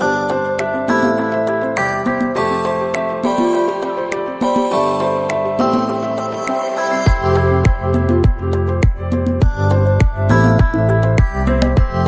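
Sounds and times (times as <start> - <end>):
music with sustained chords: 0.0 - 12.0
low thumping beat: 7.1 - 12.0.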